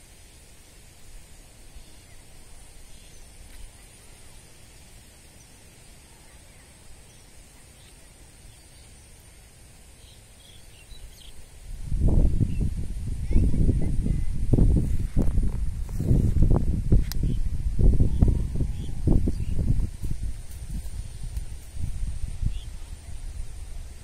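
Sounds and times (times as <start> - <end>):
faint bird chirps: 5.3 - 9.3, 9.9 - 11.5, 22.4 - 23.4
wind rumbling on microphone: 10.8 - 24.0.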